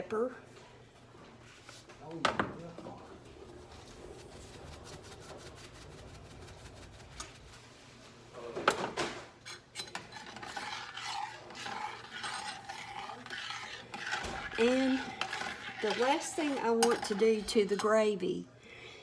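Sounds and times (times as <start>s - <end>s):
spoon scraping metal pan: 9.4s - 18.2s
seasoning rasping into gravy: 9.5s - 17.8s.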